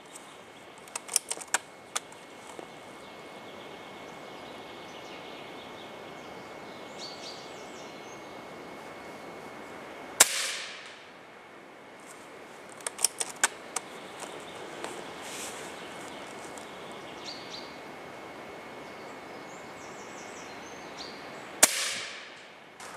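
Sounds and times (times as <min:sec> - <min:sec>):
air rifle lever metallic clicks: 0:00.8 - 0:02.1, 0:12.7 - 0:14.3
air rifle shot: 0:10.2 - 0:11.0, 0:21.6 - 0:22.9.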